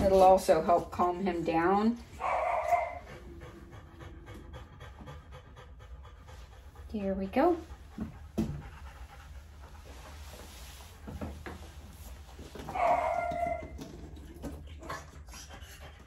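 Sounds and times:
dog whining cry: 2.2 - 3.4, 12.6 - 14.0.

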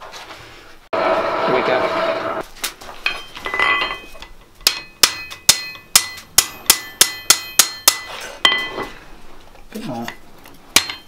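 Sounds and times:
hammer striking hot steel on anvil: 3.1 - 8.9, 10.1 - 11.0.

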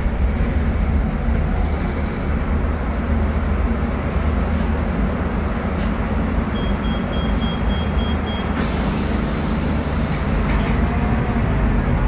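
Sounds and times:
diesel bus engine running: 0.0 - 12.0
short high beeps: 6.5 - 8.6.

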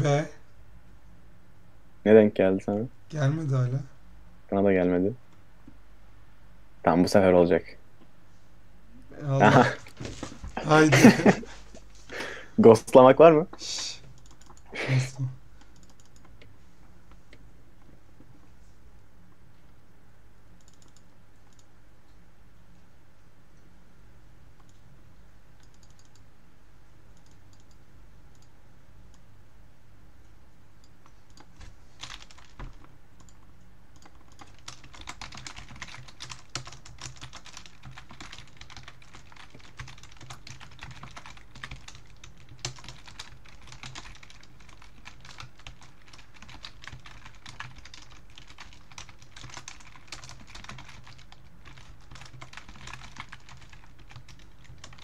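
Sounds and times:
typing on computer keyboard: 14.1 - 14.6, 15.6 - 16.3, 20.6 - 21.7, 25.6 - 26.2, 27.2 - 28.5, 31.0 - 33.4, 34.0 - 55.0.

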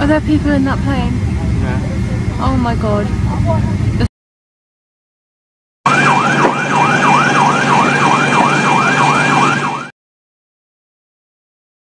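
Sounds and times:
engine hum: 0.0 - 4.1, 5.9 - 9.9
siren yelping: 5.8 - 9.9.

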